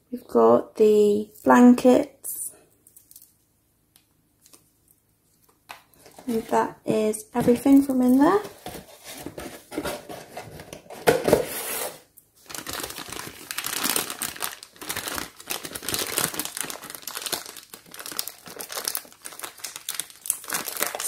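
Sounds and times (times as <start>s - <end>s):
plastic bag crinkling: 11.4s - 21.0s.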